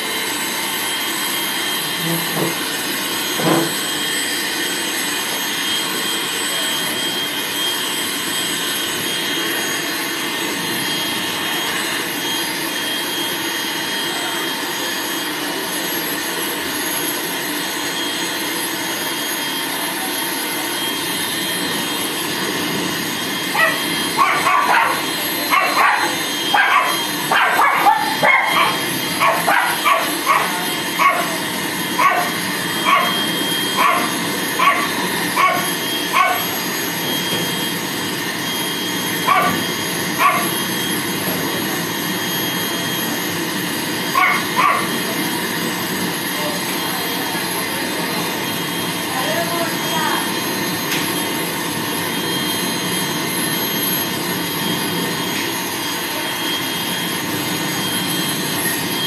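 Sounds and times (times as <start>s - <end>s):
pet dryer blowing: 0.0s - 59.0s
small dog yelping and barking: 23.5s - 36.5s, 39.2s - 40.6s, 44.1s - 45.0s.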